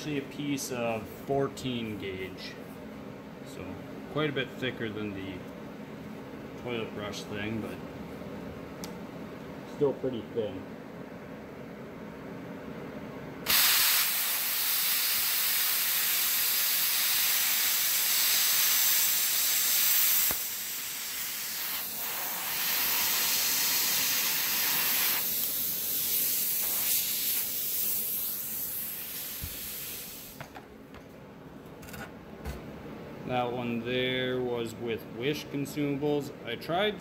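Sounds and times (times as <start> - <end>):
plasma cutter hissing: 13.5 - 30.4.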